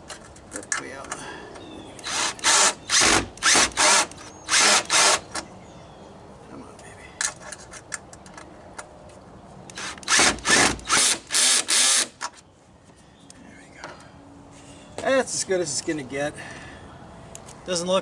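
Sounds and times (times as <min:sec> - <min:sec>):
cordless drill driving a bolt: 0:02.0 - 0:05.4, 0:09.7 - 0:12.2.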